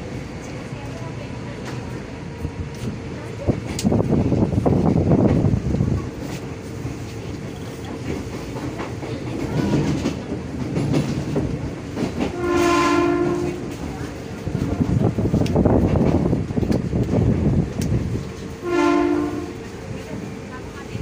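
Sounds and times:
train car rumble: 0.0s - 21.0s
train horn: 12.3s - 13.8s, 18.6s - 19.7s.

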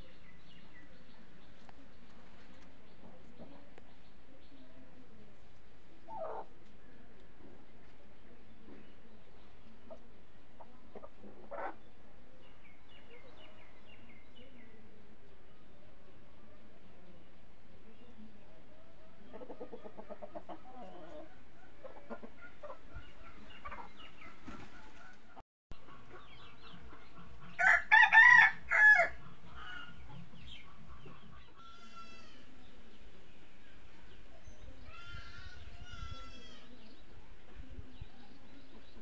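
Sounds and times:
chicken calls: 19.2s - 32.6s
rooster crowing: 27.6s - 29.2s.

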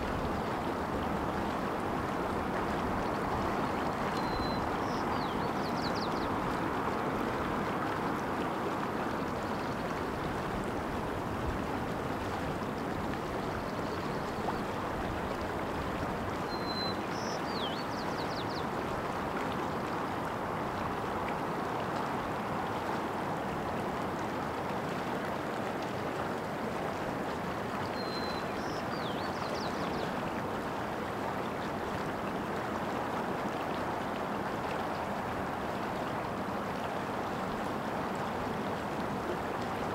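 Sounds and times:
stream water over rocks: 0.0s - 39.9s
bird calling: 4.1s - 6.3s.

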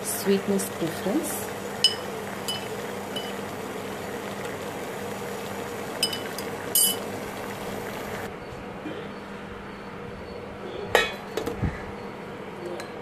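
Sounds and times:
water boiling in saucepan: 0.0s - 8.3s.

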